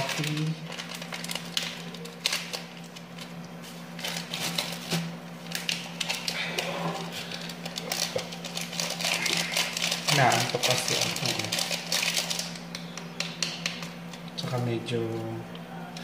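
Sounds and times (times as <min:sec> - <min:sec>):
sachet crinkling: 0:00.0 - 0:12.8.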